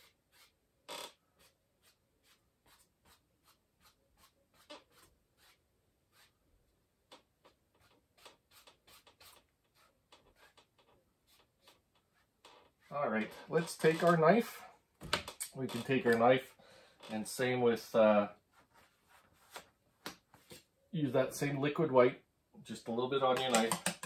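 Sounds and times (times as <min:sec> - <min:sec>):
paintbrush strokes on canvas: 0:01.4 - 0:06.4.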